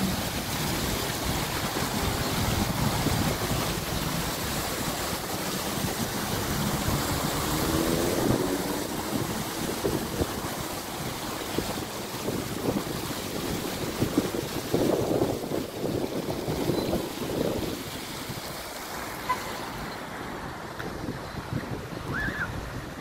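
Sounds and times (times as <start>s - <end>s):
wind buffeting microphone: 0.0s - 18.9s, 20.4s - 23.0s
fountain water splashing: 0.0s - 23.0s.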